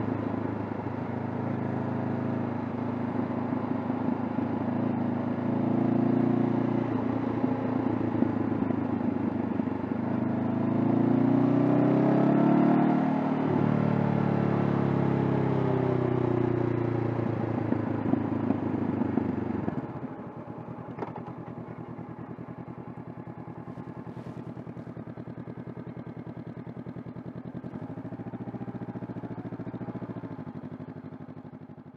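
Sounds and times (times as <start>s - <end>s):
motorcycle engine idling: 14.5s - 31.9s.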